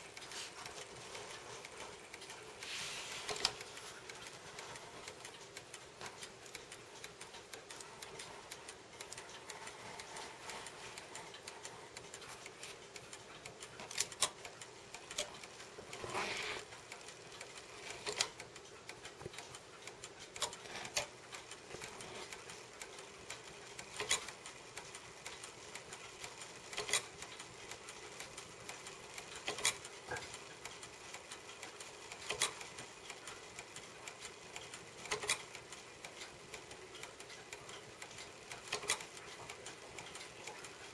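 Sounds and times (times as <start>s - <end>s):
clock mechanism ticking: 0.0s - 40.9s
short mechanical rasp: 16.0s - 16.6s.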